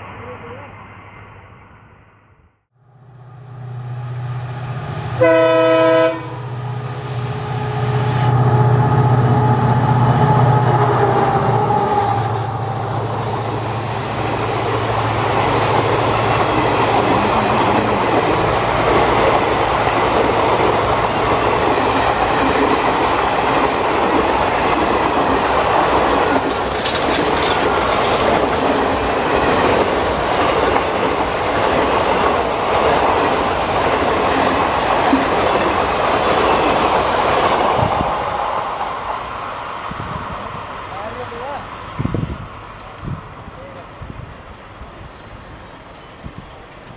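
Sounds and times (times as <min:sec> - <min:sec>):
diesel locomotive engine drone: 0:00.0 - 0:46.9
locomotive horn blast: 0:05.1 - 0:11.0
train wheels clattering over rail joints: 0:21.2 - 0:31.4.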